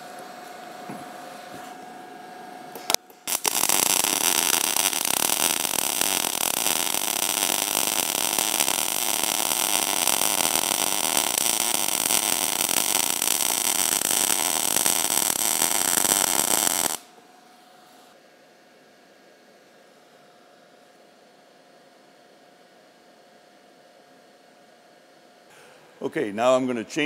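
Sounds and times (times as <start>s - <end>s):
welding arc crackling sizzle: 2.7s - 17.1s.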